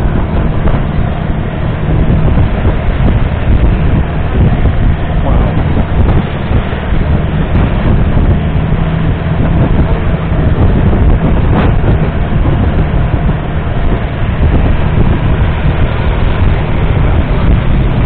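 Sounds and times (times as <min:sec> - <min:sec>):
boat diesel engine droning: 0:00.0 - 0:18.0
water rushing along hull: 0:00.0 - 0:18.0
wind on microphone: 0:00.0 - 0:18.0.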